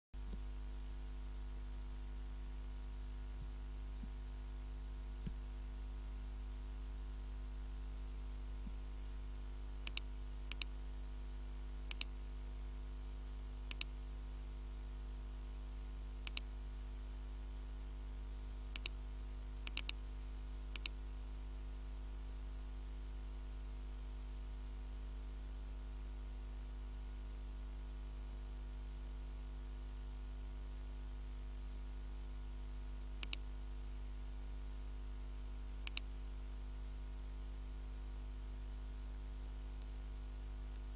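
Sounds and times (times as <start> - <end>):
electrical mains hum: 0.2 - 40.9
computer mouse clicks: 9.8 - 10.7, 11.9 - 12.1, 13.7 - 13.9, 16.2 - 16.5, 18.7 - 19.0, 19.6 - 20.0, 20.7 - 21.0, 33.2 - 33.5, 35.8 - 36.1.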